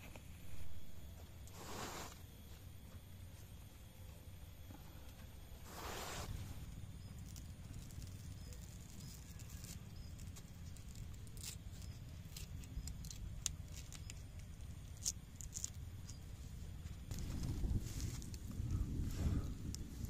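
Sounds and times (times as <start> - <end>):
banana leaf crinkling: 6.2 - 20.0.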